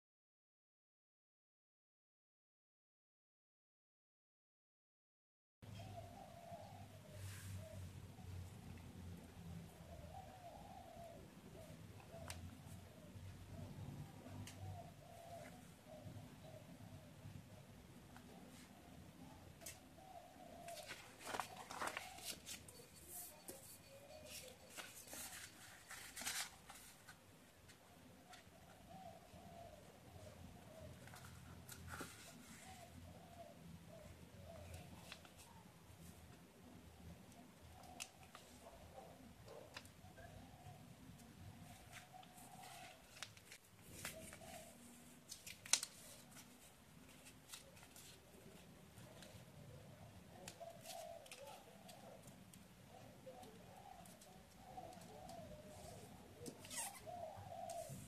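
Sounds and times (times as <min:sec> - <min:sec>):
paper rustling and crackling: 0:20.7 - 0:27.2, 0:41.6 - 0:49.5.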